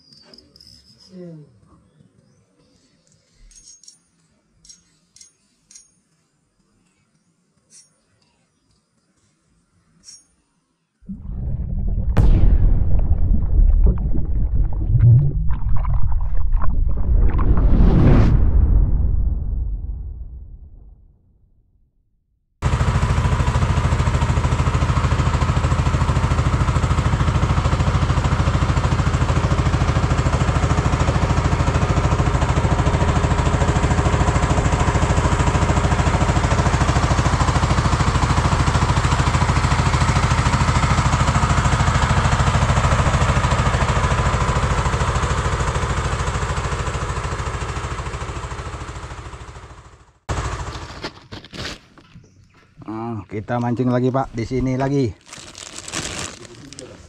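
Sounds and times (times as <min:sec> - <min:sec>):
boat motor running: 0:11.1 - 0:17.6.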